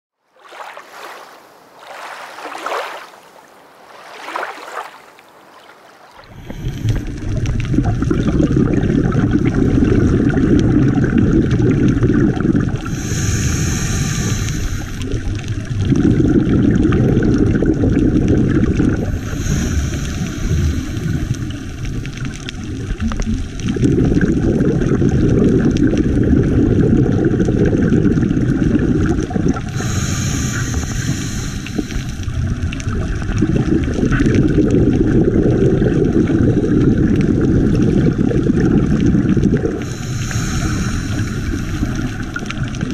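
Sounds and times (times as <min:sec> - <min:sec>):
exhaled bubbles rumbling underwater: 0:06.1 - 0:42.9
hissing regulator inhalations: 0:06.2 - 0:07.4, 0:12.8 - 0:15.2, 0:19.0 - 0:22.2, 0:29.7 - 0:32.3, 0:39.8 - 0:42.2.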